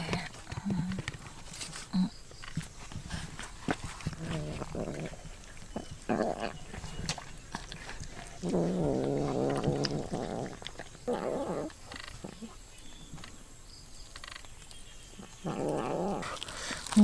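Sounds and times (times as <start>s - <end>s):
animal's low call: 4.1s - 12.6s, 15.2s - 16.4s.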